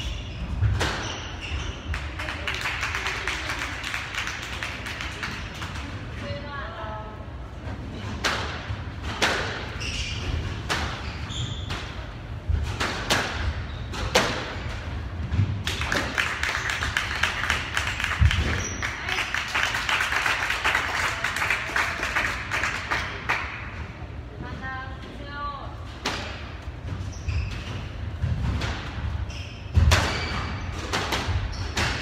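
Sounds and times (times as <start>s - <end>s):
sneaker squeaks on wooden floor: 0.0s - 1.9s, 9.7s - 12.0s, 13.5s - 14.7s, 27.0s - 28.2s, 29.2s - 30.8s.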